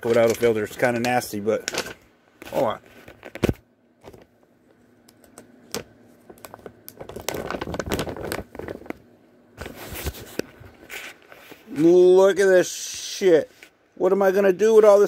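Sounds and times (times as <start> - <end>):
plastic bag crinkling: 6.2 - 11.8.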